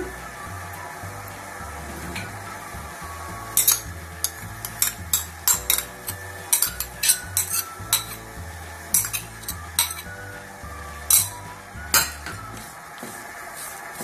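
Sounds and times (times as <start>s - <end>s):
metal spoon scraping ceramic bowl: 3.6s - 8.3s, 8.9s - 10.1s.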